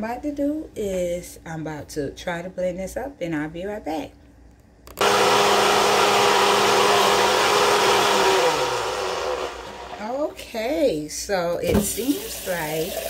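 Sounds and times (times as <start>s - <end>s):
blender motor running: 5.0s - 10.2s.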